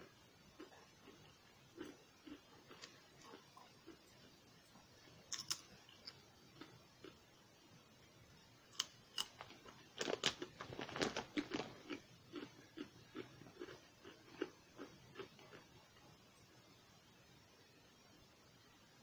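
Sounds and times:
person chewing: 0.6 - 4.1, 5.3 - 7.2, 8.8 - 15.8
potato chips crunching: 1.8 - 4.0, 5.3 - 6.7, 8.7 - 15.7.

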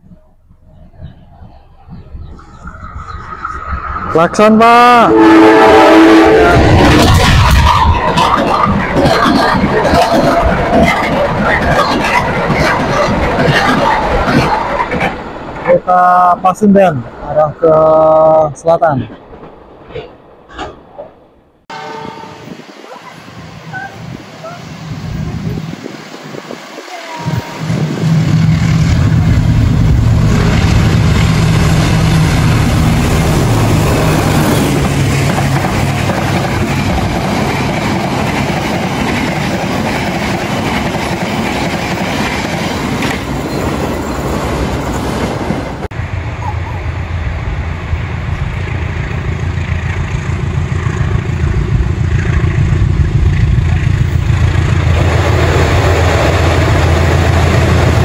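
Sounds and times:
low engine drone: 0.0 - 5.2
train wheels rumbling on rails: 0.0 - 15.8, 21.9 - 58.0
diesel locomotive approaching: 0.0 - 58.0.

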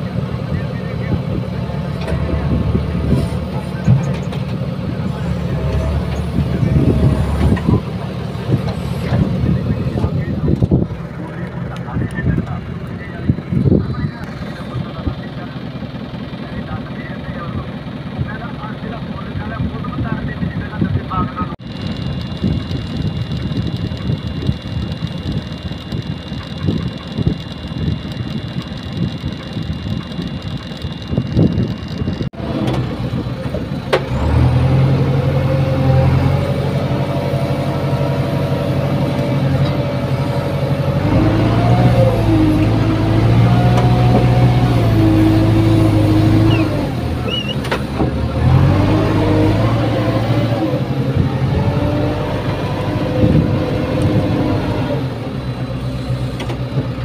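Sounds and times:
diesel engine running: 0.0 - 57.0.

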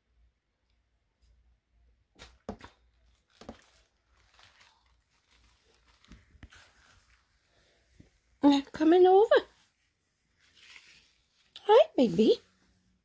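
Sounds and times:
rustles and soft taps: 2.2 - 8.3.

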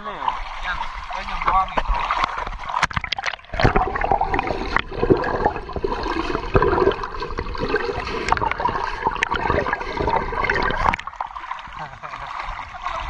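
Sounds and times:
underwater water noise: 0.0 - 13.0
small underwater clicks and knocks: 1.4 - 11.4.

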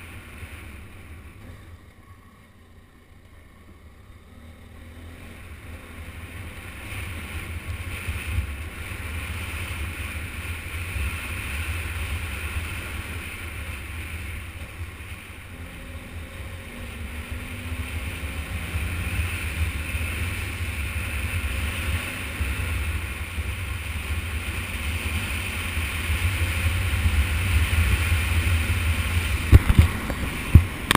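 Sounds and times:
motorcycle engine running: 0.0 - 30.9
wind rumble on microphone: 5.3 - 30.9
tyres on gravel: 29.3 - 30.9.

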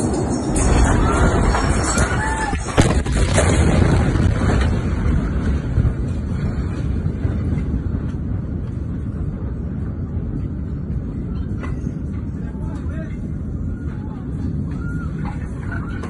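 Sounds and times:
explosion rumbling roar: 0.0 - 11.6.

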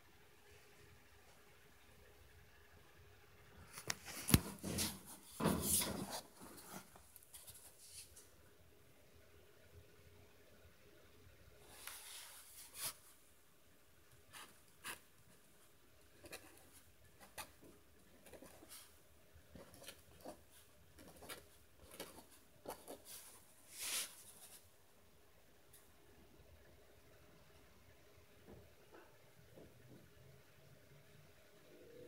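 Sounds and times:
pen scratching on paper: 16.2 - 18.9, 19.5 - 23.3.

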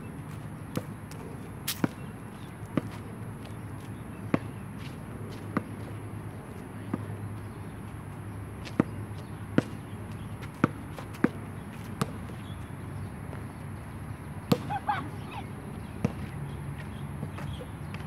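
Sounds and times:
basketball bouncing on hard court: 10.5 - 11.4, 12.0 - 12.5.

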